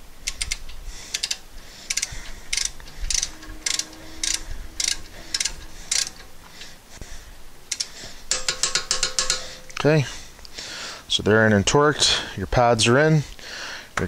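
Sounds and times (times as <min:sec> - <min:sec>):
ratcheting wrench clicking: 0:00.2 - 0:06.3, 0:07.7 - 0:09.8.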